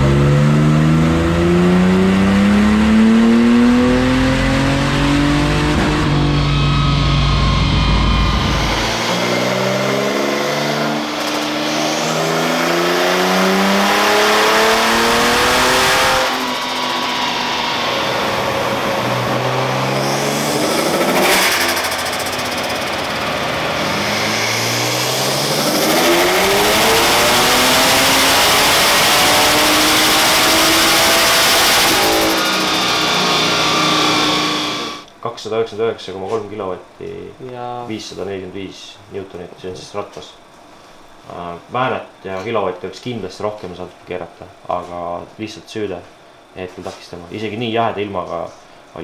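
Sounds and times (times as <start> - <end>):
car engine revving at full throttle: 0.0 - 35.1.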